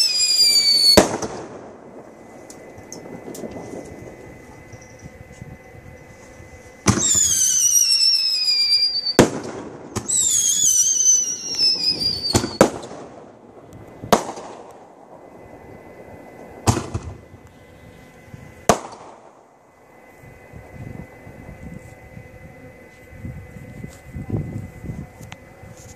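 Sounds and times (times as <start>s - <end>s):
firework bangs: 0.0s - 17.4s, 18.2s - 19.6s
falling firework whistles: 0.0s - 22.4s.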